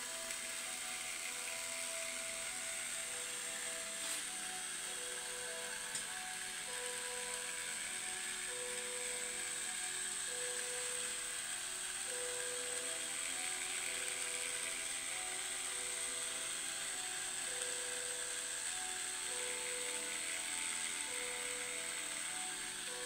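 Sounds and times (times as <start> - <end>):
ratchet-like buzz: 0.0 - 23.0.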